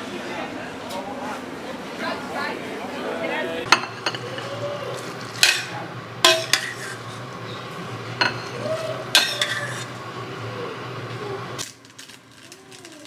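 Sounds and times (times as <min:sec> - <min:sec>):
steady low hum: 0:00.0 - 0:13.0
metal pot clanking on bowl: 0:05.4 - 0:06.8, 0:08.2 - 0:08.6.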